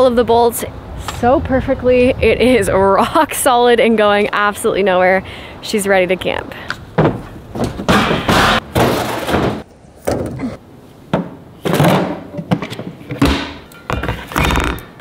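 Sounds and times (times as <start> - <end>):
items knocking and clunking: 6.7 - 15.0
heavy thump: 7.0 - 10.4.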